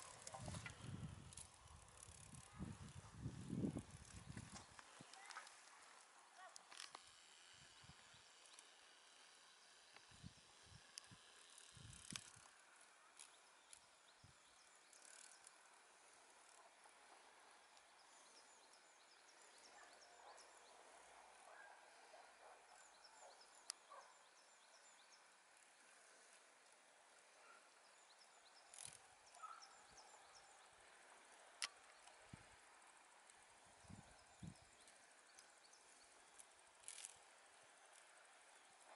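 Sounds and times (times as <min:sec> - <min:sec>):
small clicks: 0:06.4 - 0:07.2, 0:10.9 - 0:14.0, 0:14.9 - 0:15.7, 0:28.5 - 0:29.6, 0:30.9 - 0:32.3, 0:34.4 - 0:38.2.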